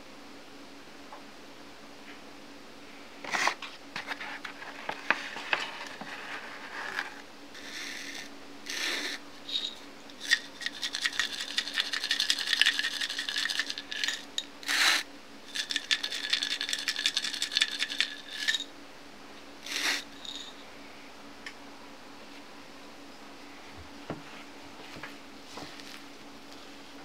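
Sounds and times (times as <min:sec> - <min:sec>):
steady ringing tone: 0:07.6 - 0:14.8, 0:15.5 - 0:18.7, 0:19.6 - 0:20.8.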